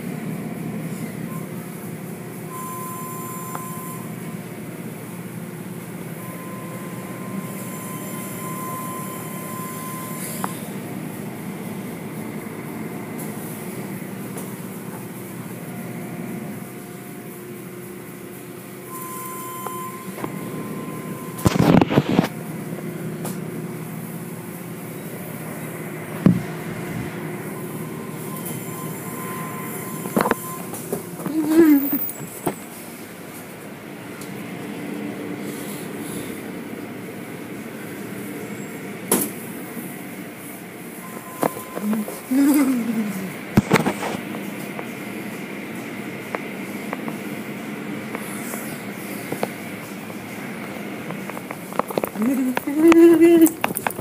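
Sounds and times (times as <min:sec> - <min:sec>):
thin mechanical whine: 0:00.0 - 0:35.2
car wash machinery rumbling: 0:00.0 - 0:54.0.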